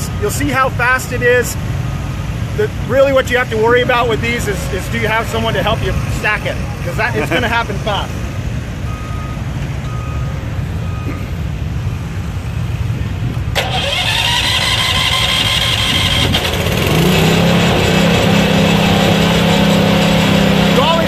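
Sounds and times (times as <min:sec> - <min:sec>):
engine starting: 0:13.5 - 0:17.2.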